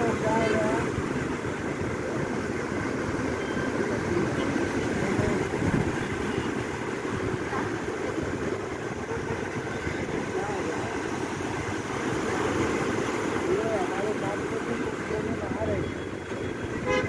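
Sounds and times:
wind buffeting microphone: 0.0 - 14.1
sea waves breaking on concrete: 0.0 - 15.6.

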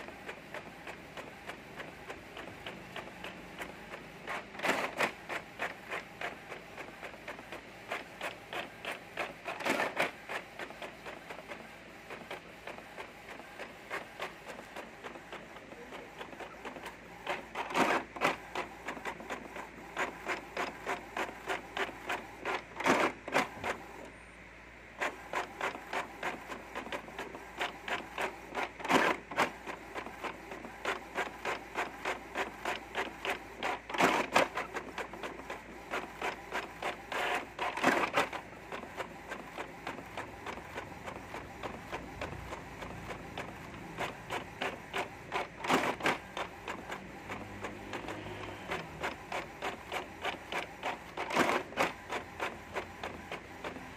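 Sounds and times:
printer carriage moving: 0.0 - 24.1, 25.0 - 53.9
paper feed clack: 25.0 - 53.9.

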